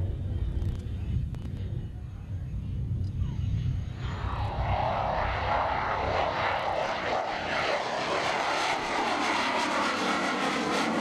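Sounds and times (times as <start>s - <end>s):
jet fighter roaring past: 3.9s - 11.0s.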